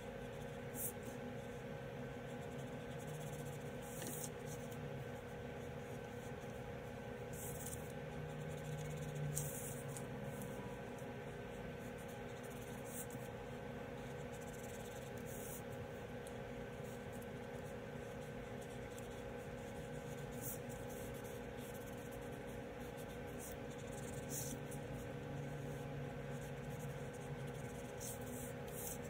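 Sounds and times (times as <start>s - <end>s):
faint steady hum: 0.0s - 29.0s
marker scratching on paper: 7.3s - 10.6s, 11.8s - 13.3s, 14.0s - 29.0s.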